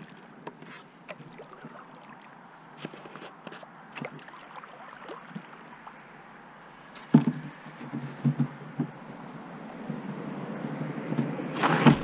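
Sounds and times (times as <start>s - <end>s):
paddle drips and splashes: 0.0s - 7.1s, 11.5s - 12.0s
light thumps: 7.0s - 9.0s.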